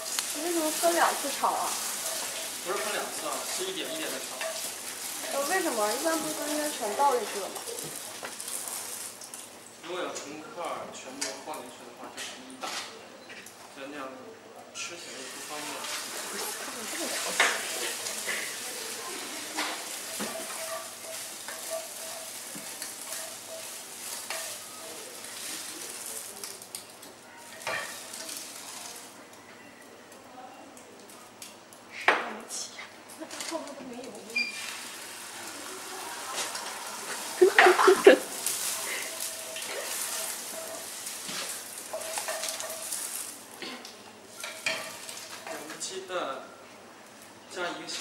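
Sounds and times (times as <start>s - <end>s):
food sizzling in a frying pan: 0.0s - 12.8s, 14.8s - 48.0s
wooden spatula scraping: 15.2s - 26.0s, 36.1s - 43.3s.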